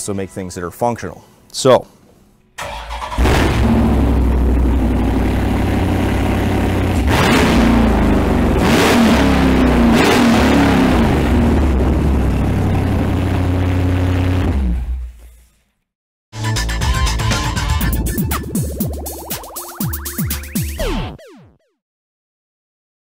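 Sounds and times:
car engine idling and revving: 0:02.9 - 0:15.1.

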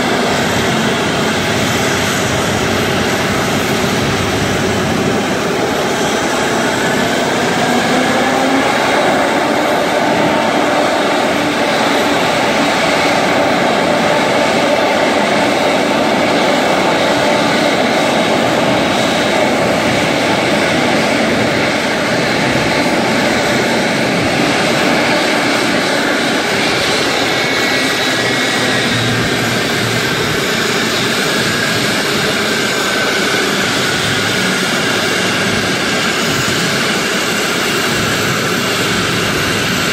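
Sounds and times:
jet engine whine: 0:00.0 - 0:39.9
jet engines rushing: 0:00.0 - 0:39.9.

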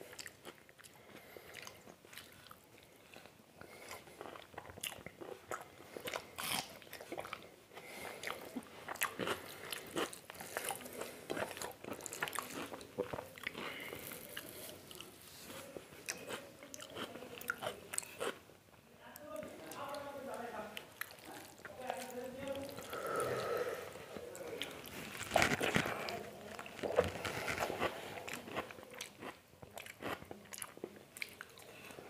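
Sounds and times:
wet chewing and lip-smacking: 0:00.0 - 0:18.4, 0:19.7 - 0:23.0, 0:24.2 - 0:31.9
crunching raw onion: 0:25.0 - 0:30.7.

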